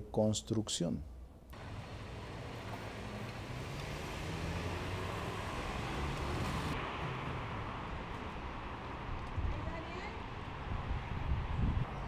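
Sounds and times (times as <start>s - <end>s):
street hiss: 1.6s - 9.1s
low engine hum: 1.6s - 9.2s.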